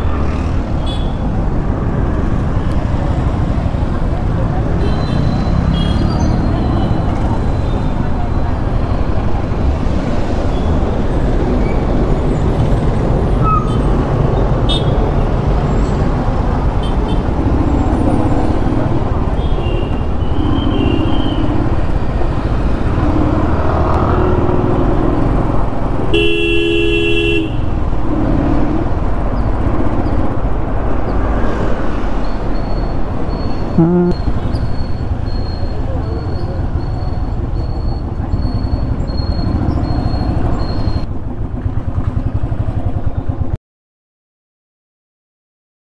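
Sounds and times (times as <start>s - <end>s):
wind: 0.0s - 43.6s
vehicle horn honking: 26.2s - 27.6s, 33.8s - 34.2s.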